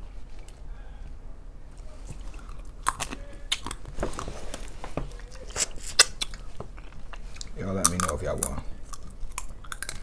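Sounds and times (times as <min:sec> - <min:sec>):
wet mouth smacks and chewing: 0:05.2 - 0:10.0.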